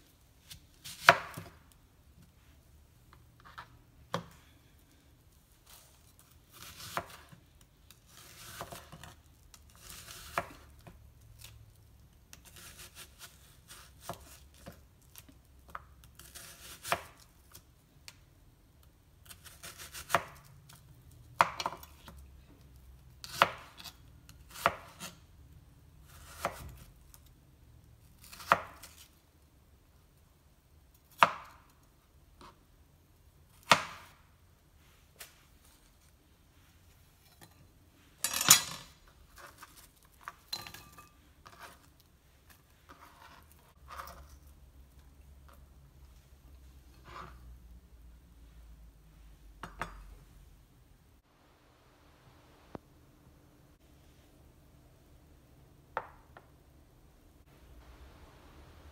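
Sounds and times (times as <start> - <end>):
knife slicing onion on hard surface: 0.4 - 1.7, 5.6 - 11.6, 12.3 - 17.7, 19.2 - 20.5, 23.2 - 25.3, 26.0 - 26.9, 28.2 - 29.1, 39.3 - 44.4, 46.9 - 47.5.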